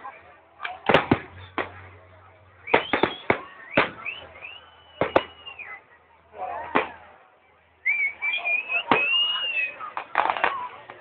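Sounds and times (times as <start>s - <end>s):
firework bangs: 0.7s - 5.7s, 6.6s - 7.1s, 8.8s - 11.0s
firework whistles: 2.6s - 5.8s, 7.8s - 10.4s.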